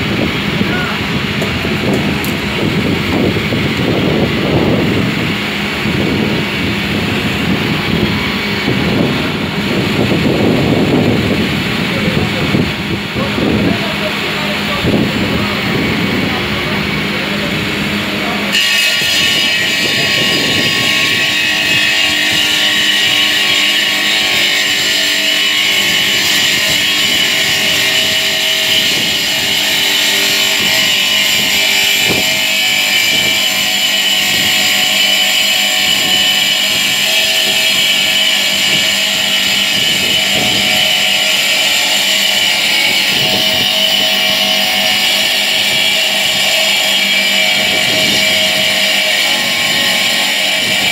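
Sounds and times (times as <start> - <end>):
stone saw cutting marble: 0.0 - 50.9.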